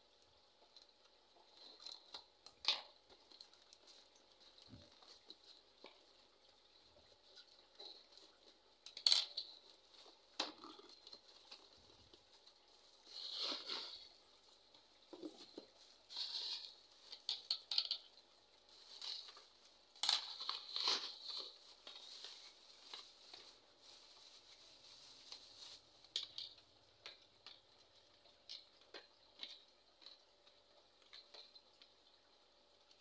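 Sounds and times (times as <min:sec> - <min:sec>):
plastic bag crinkling: 0:07.0 - 0:26.6.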